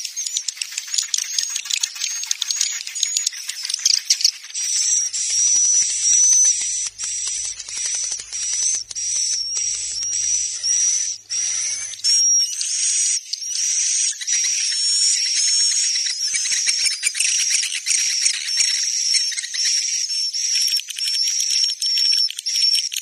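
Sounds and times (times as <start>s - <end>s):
high-pitched bird chattering trills: 0.0s - 15.4s.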